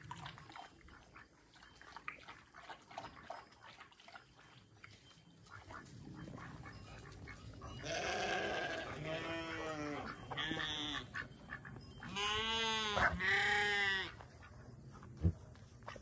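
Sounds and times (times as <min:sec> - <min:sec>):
farm animals bleating: 0:07.7 - 0:11.4, 0:12.0 - 0:14.2.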